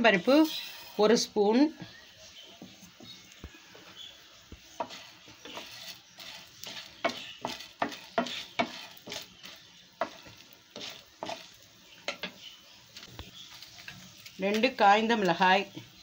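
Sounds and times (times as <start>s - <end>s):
faint sizzle: 0.0s - 16.0s
spatula scraping pan: 4.6s - 14.6s.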